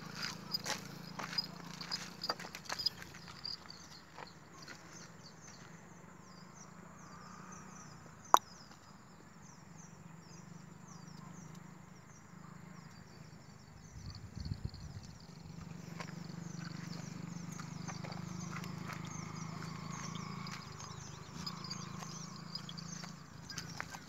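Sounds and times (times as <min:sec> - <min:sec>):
hooves stepping on dirt: 0:00.0 - 0:05.7, 0:15.5 - 0:24.0.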